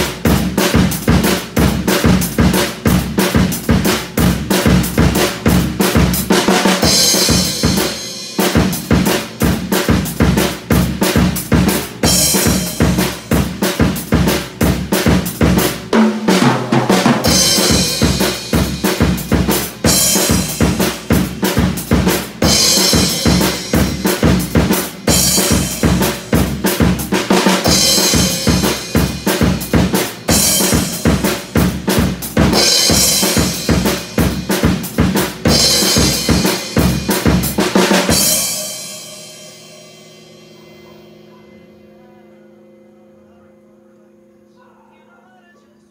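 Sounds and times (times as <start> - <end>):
drum kit pop groove: 0.0 - 40.5
cymbal crashes: 6.7 - 10.0, 11.5 - 34.8, 35.4 - 42.0.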